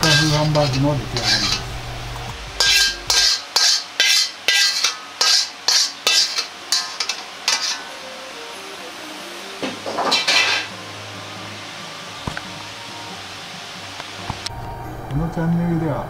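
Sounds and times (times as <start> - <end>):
metal utensil scraping wok: 0.0 - 8.0, 9.6 - 10.8.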